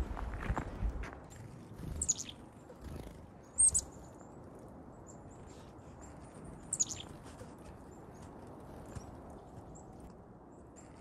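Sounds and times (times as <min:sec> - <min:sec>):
soft high bird peeps: 0:02.0 - 0:02.4, 0:06.7 - 0:07.1
chickadees chirping: 0:06.7 - 0:07.1.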